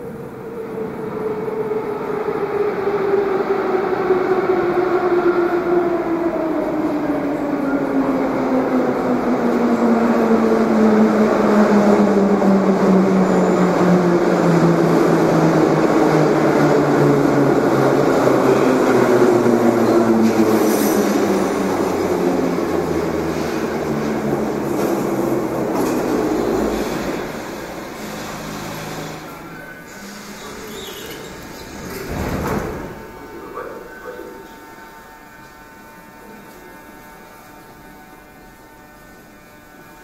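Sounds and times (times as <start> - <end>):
wheels rumbling on rail: 3.4 - 38.0
high brake squeal: 28.1 - 31.8.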